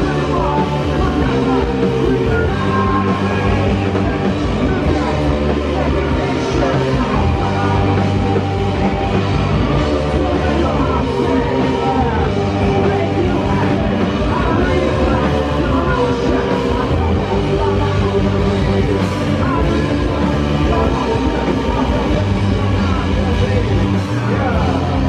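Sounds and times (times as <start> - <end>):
rock band playing live: 0.0 - 25.0.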